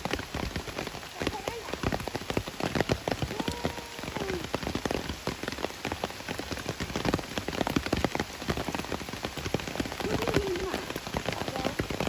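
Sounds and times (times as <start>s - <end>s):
rain falling on leaves: 0.0s - 12.0s.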